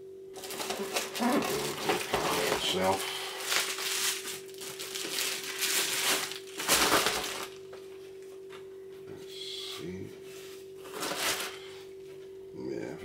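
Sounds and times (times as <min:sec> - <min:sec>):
bubble wrap crinkling: 0:00.4 - 0:07.7, 0:10.8 - 0:11.5.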